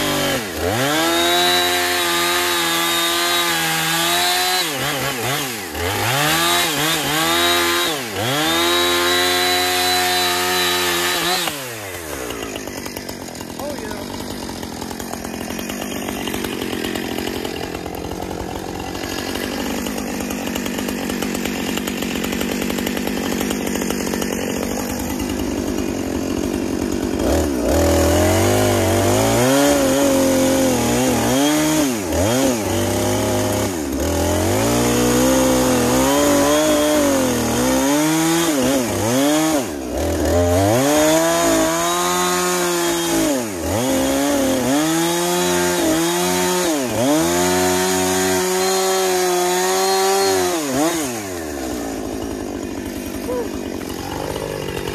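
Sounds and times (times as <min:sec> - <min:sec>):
chainsaw running: 0:00.0 - 0:54.9.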